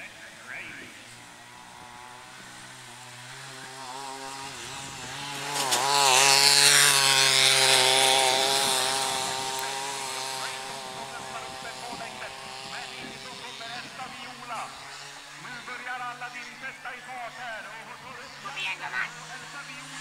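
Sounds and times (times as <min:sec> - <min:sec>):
mechanical lure whirring on rail: 0:02.0 - 0:13.6.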